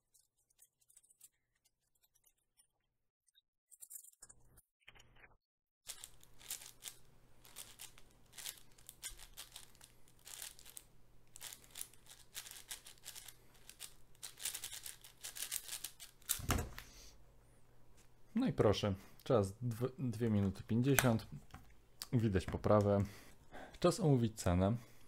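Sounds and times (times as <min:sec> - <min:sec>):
puzzle cube plastic clicks: 0:05.9 - 0:16.8.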